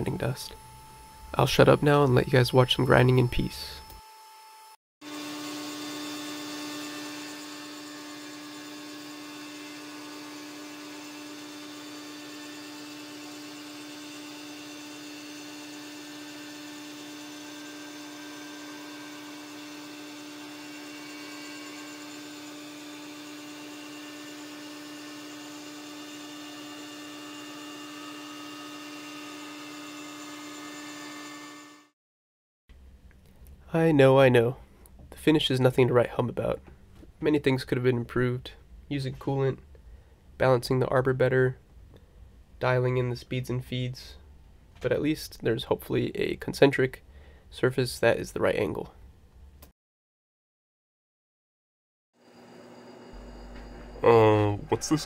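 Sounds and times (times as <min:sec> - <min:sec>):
grinder and vacuum humming: 0:00.0 - 0:31.9, 0:52.2 - 0:55.0.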